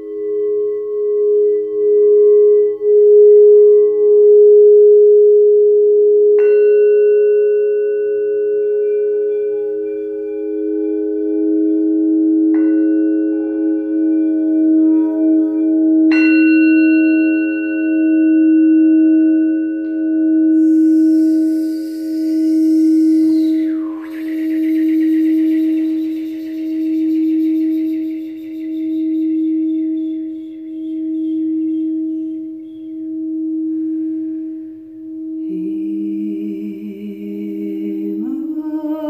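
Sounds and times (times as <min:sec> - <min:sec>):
singing bowls ringing: 0:00.0 - 0:39.0
soft high hiss: 0:19.5 - 0:39.0.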